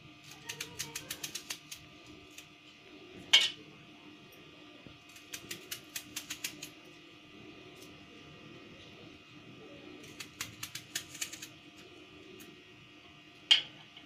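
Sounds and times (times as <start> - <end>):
knife crunching through onion: 10.0 - 11.6.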